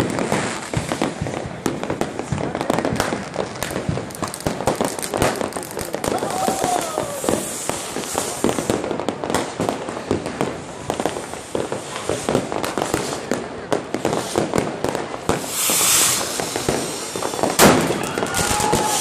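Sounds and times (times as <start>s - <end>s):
fireworks cracking and banging: 0.0s - 19.0s
firework hissing whoosh: 3.7s - 9.6s, 14.0s - 19.0s.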